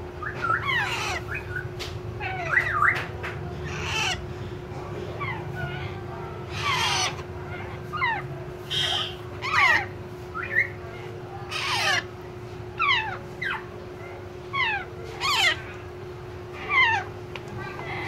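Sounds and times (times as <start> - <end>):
parakeet chicks squawking: 0.2 - 18.0.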